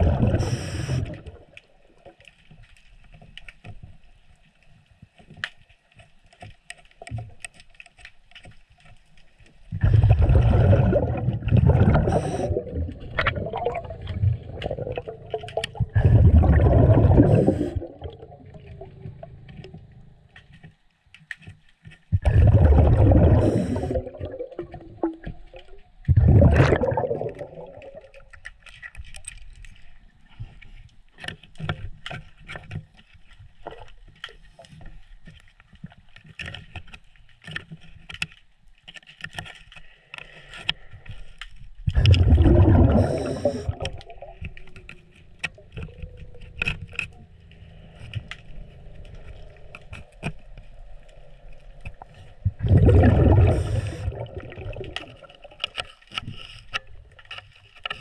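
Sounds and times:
underwater regulator breathing bubbles: 0:00.0 - 0:01.4, 0:09.7 - 0:20.0, 0:22.2 - 0:25.2, 0:26.1 - 0:28.2, 0:41.9 - 0:56.7.

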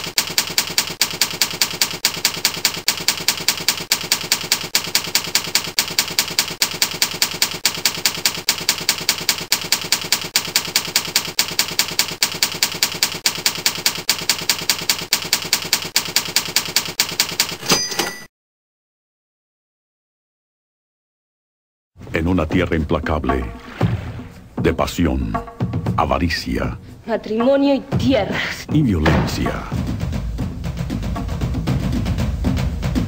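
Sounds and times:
typewriter keys clacking: 0:00.0 - 0:18.1.

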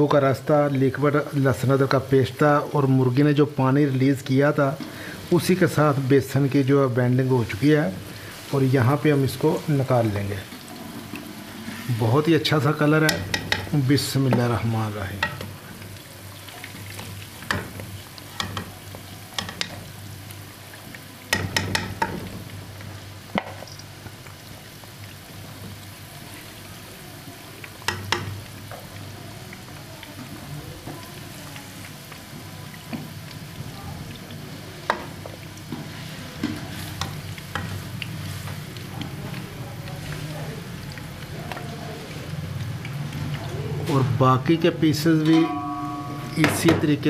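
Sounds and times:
food sizzling in oil: 0:00.0 - 0:47.0
metal spoon clinking on pan: 0:21.3 - 0:22.2, 0:45.2 - 0:46.8.

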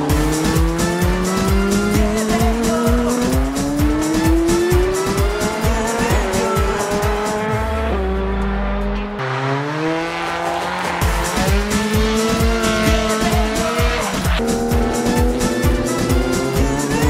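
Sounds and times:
electronic music with kick drum: 0:00.0 - 0:09.2, 0:10.1 - 0:17.0.

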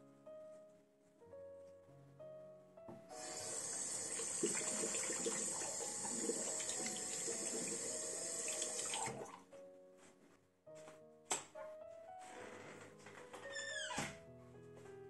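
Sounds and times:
tap water running into sink: 0:03.2 - 0:09.3.

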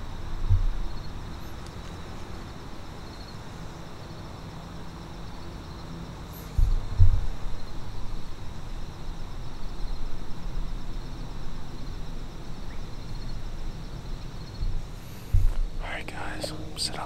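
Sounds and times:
wind rumble on microphone: 0:00.0 - 0:02.4, 0:06.5 - 0:15.9.

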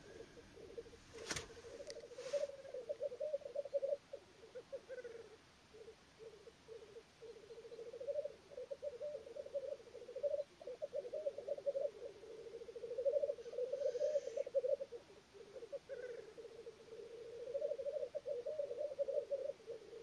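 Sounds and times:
faint bird hissing note: 0:00.0 - 0:03.5, 0:12.2 - 0:14.8
grouse bubbling cooing song: 0:00.0 - 0:20.0.

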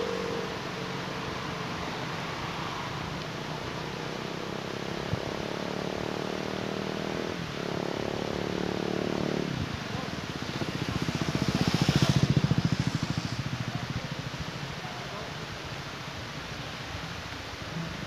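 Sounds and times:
steady engine note: 0:00.0 - 0:01.0
pulsing engine passing: 0:00.0 - 0:01.4, 0:04.2 - 0:14.6
steady rushing noise: 0:07.3 - 0:18.0.

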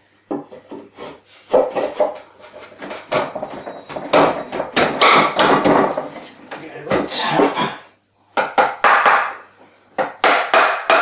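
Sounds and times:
wooden shelf scraping and knocking: 0:00.3 - 0:07.6.

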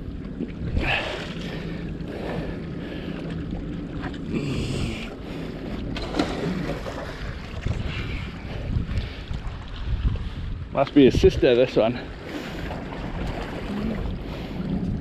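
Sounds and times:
low steady hum: 0:00.0 - 0:15.0
wind buffeting microphone: 0:00.0 - 0:15.0.

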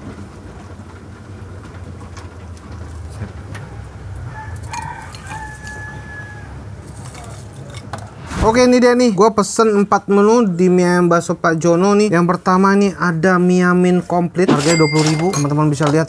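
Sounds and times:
rooster crowing: 0:04.2 - 0:07.1
steady low rumble: 0:08.0 - 0:08.9.

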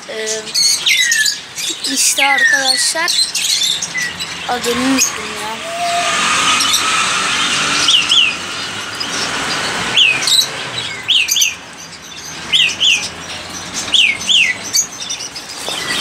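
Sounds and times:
bird chirping: 0:00.0 - 0:16.0.

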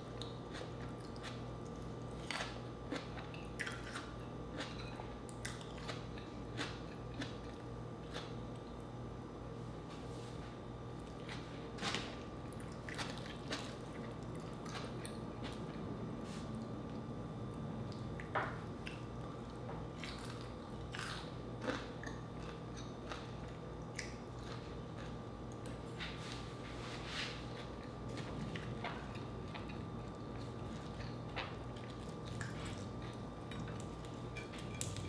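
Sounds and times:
steady low hum: 0:00.0 - 0:35.0
chewing with wet mouth smacks: 0:12.4 - 0:17.2, 0:17.8 - 0:25.8, 0:27.5 - 0:35.0.

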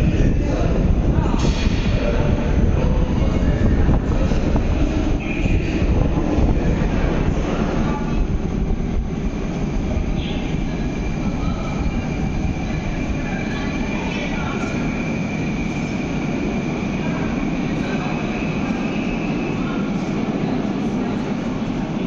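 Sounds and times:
metro train rumbling: 0:00.0 - 0:22.0.

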